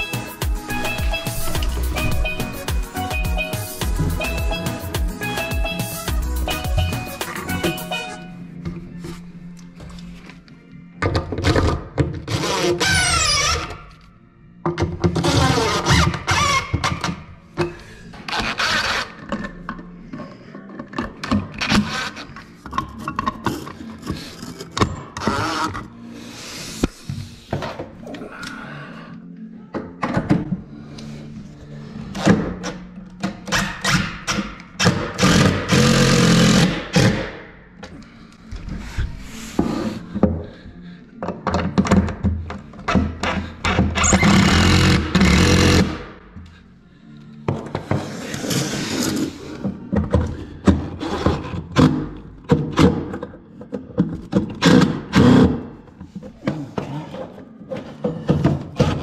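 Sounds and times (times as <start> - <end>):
impact driver driving screws: 33.5 - 37.4, 44.0 - 46.0
impact driver hammering screw: 34.8 - 37.4.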